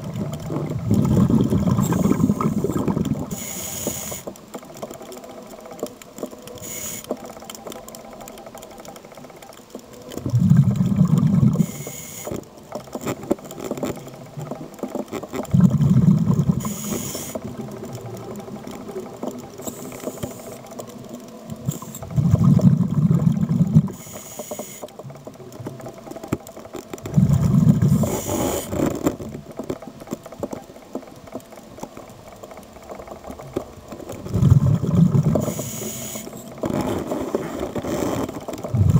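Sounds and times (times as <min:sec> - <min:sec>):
exhaled bubbles rumbling: 0:00.0 - 0:03.4, 0:10.1 - 0:11.8, 0:13.6 - 0:19.9, 0:20.9 - 0:24.0, 0:27.0 - 0:29.5, 0:33.3 - 0:35.8, 0:36.6 - 0:38.9
faint crackle: 0:00.0 - 0:38.9
regulator inhalation hiss: 0:01.9 - 0:04.3, 0:06.6 - 0:07.2, 0:11.6 - 0:12.3, 0:16.6 - 0:17.4, 0:23.9 - 0:24.9, 0:27.9 - 0:28.7, 0:35.4 - 0:36.4.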